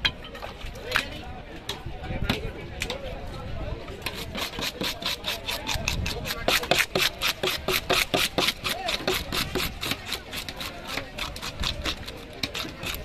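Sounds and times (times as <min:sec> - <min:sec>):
blade scraping fish scales: 0:04.0 - 0:13.0.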